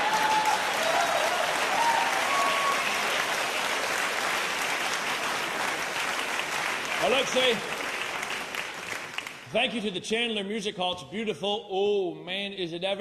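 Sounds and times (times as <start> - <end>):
audience cheering: 0.0 - 8.0
audience applauding: 0.0 - 9.5.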